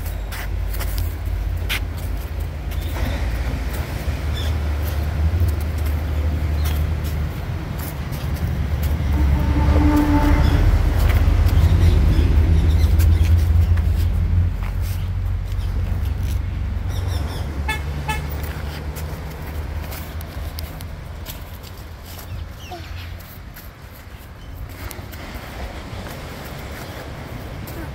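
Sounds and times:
footsteps on concrete steps: 0:00.0 - 0:27.9
low rumble: 0:00.6 - 0:17.6
motor vehicle passing: 0:01.2 - 0:21.5.

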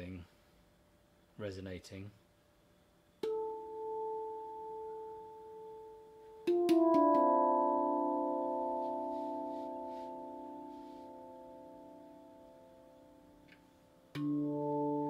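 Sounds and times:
steel tongue drum notes: 0:06.5 - 0:13.0.

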